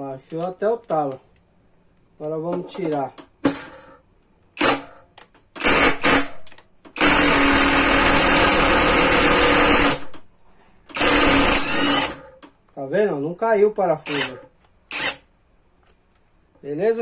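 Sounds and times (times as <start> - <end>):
cordless impact driver running: 7.0 - 10.1, 10.9 - 12.2, 14.9 - 15.2.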